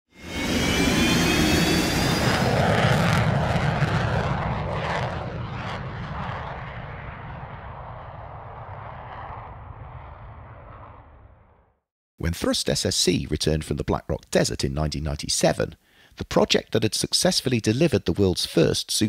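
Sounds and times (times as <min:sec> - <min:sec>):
jet engine rushing past: 0:00.1 - 0:11.7.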